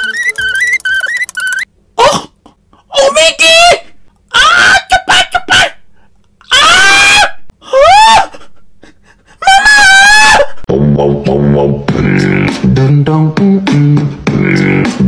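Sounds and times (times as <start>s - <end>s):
man crying out in surprise: 6.5s - 8.6s.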